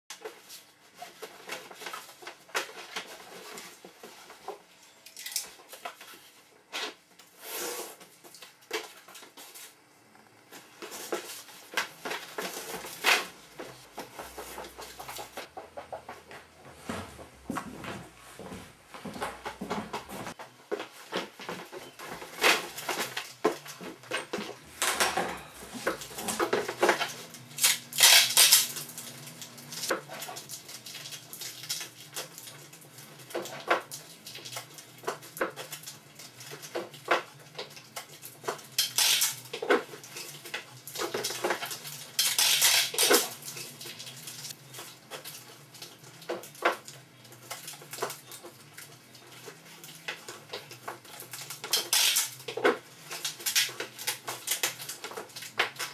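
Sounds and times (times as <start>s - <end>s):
hard objects clattering: 10.8s - 35.8s, 38.3s - 55.9s.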